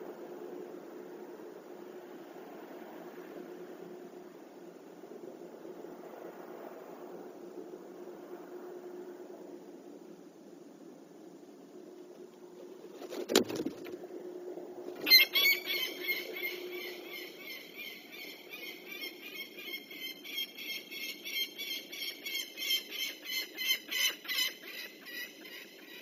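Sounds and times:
falcon alarm calls: 0:15.0 - 0:25.6.

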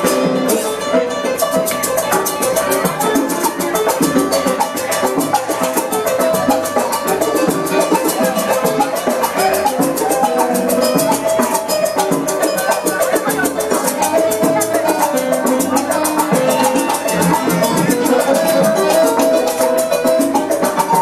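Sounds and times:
salsa music with percussion: 0:00.0 - 0:21.0.

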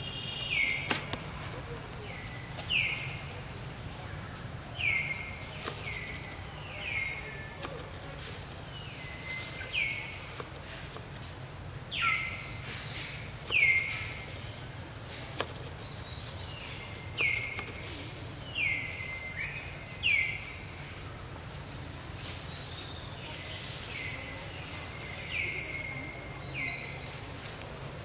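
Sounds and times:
low background noise: 0:00.0 - 0:28.0
bird calling: 0:11.8 - 0:14.6.

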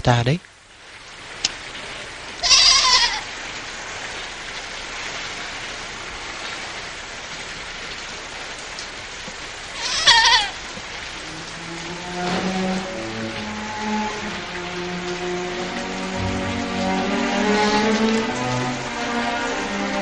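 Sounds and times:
rain hiss: 0:00.0 - 0:20.0
livestock bleating: 0:02.4 - 0:03.2, 0:09.8 - 0:10.6.

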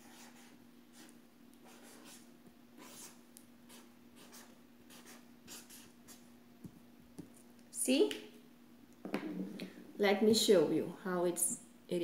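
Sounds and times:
marker strokes on paper: 0:00.0 - 0:06.2.

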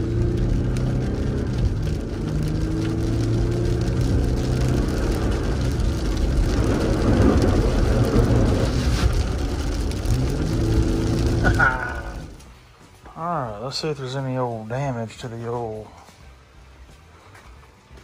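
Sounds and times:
car engine hum: 0:00.0 - 0:12.6
tyre and road noise: 0:00.0 - 0:18.0
rush of noise: 0:05.0 - 0:12.4.

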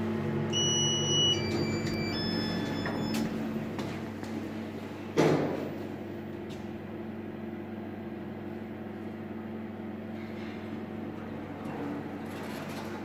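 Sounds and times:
elevator humming: 0:00.0 - 0:07.0.

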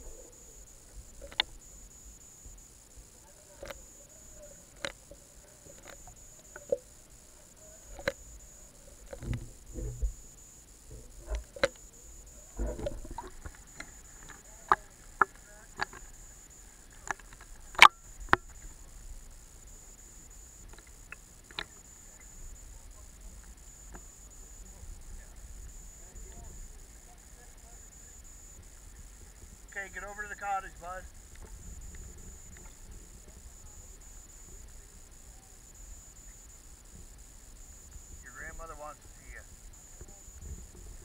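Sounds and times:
underwater clicks and knocks: 0:12.6 - 0:16.1.

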